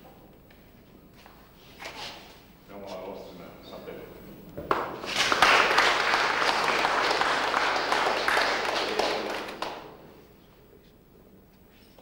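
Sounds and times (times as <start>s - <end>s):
audience applauding: 4.7s - 10.1s.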